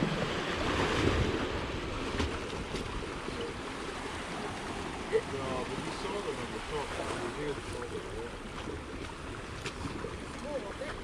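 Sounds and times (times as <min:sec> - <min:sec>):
sea waves washing over rocks: 0:00.0 - 0:11.0.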